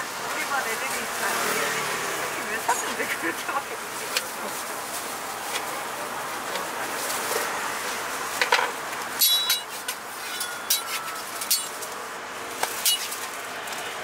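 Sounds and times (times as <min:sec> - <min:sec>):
street noise hiss: 0:00.0 - 0:14.0
sharp metallic clinks: 0:09.2 - 0:11.8.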